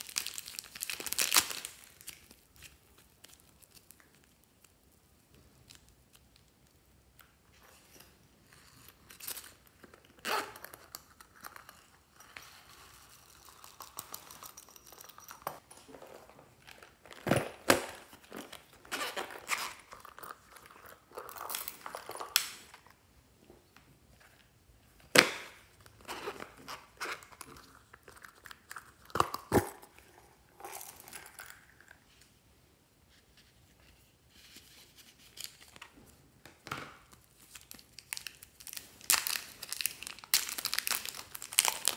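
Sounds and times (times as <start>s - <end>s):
plastic packaging crinkling: 0.0s - 4.7s, 37.0s - 41.9s.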